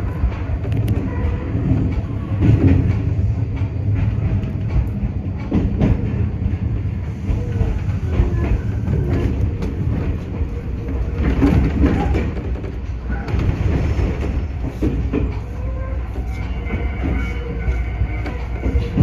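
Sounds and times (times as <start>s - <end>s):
train rumbling on track: 0.0s - 19.0s
train wheel clicks: 0.3s - 19.0s.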